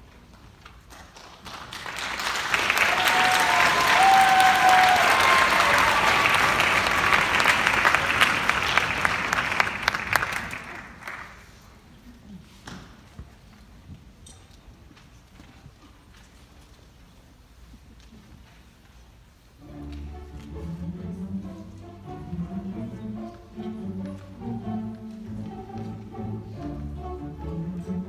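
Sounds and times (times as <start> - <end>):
audience applauding: 1.0 - 11.6.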